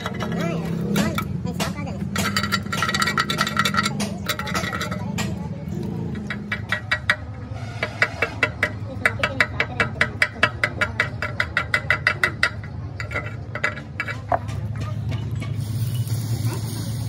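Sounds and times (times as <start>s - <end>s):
metallic tapping on steel: 0.0s - 15.7s.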